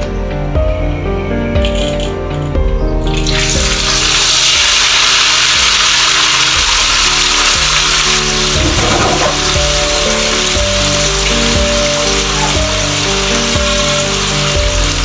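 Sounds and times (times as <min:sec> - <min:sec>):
background music: 0:00.0 - 0:15.0
fish sizzling in hot oil: 0:03.1 - 0:15.0.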